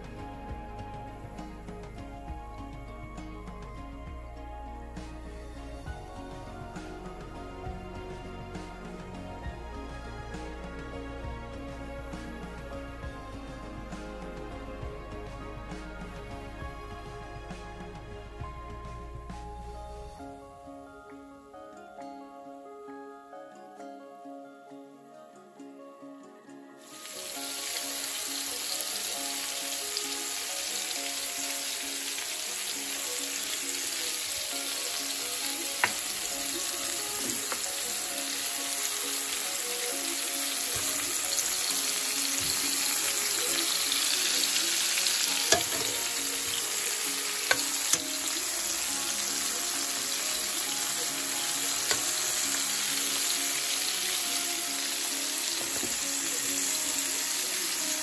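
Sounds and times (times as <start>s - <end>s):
shrimp sizzling in frying pan: 26.8s - 58.0s.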